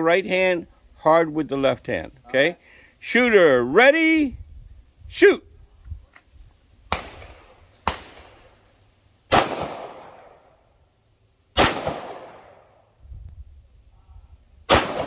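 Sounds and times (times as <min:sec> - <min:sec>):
pistol shots: 0:06.9 - 0:08.4, 0:09.3 - 0:10.5, 0:11.6 - 0:12.7, 0:14.7 - 0:15.0.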